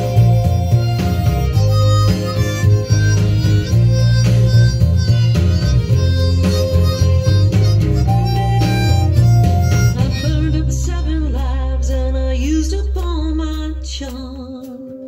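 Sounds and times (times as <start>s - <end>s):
harmonica playing: 0.0s - 10.9s
backing music with bass line: 0.0s - 15.0s.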